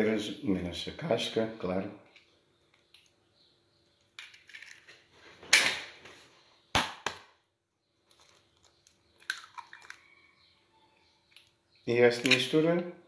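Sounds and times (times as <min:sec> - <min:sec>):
eggshells cracking: 0:08.0 - 0:10.1.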